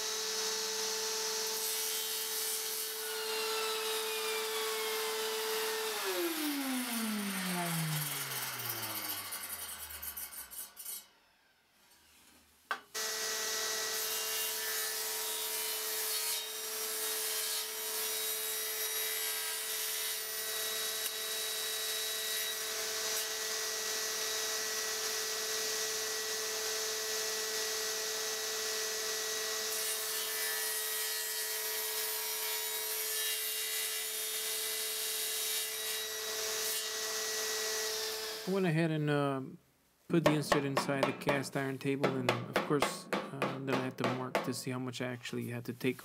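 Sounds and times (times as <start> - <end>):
table saw running: 0.0 - 10.7, 13.0 - 14.6.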